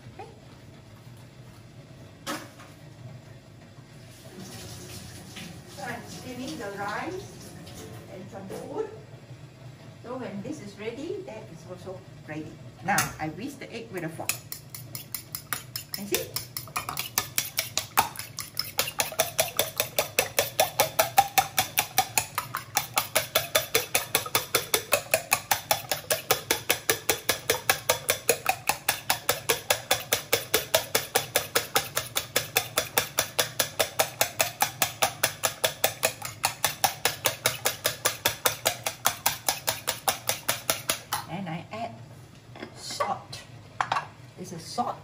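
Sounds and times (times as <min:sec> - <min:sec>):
fork whisking eggs in metal bowl: 0:14.1 - 0:41.3.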